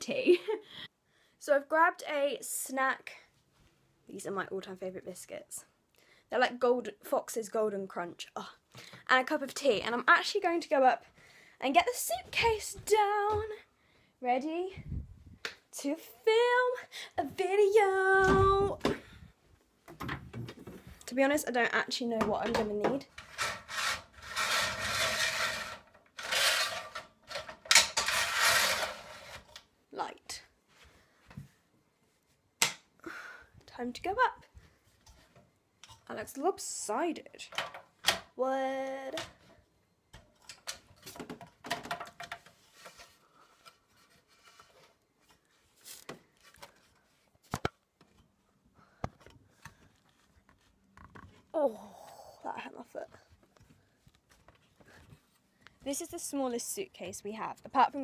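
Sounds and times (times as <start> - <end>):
metal ladder scraping and rattling: 22.4 - 29.6.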